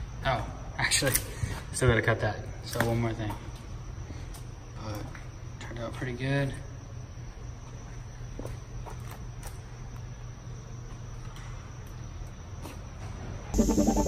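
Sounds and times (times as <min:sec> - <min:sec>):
low room hum: 0:00.0 - 0:14.0
electronic music with steady beat: 0:13.6 - 0:14.0.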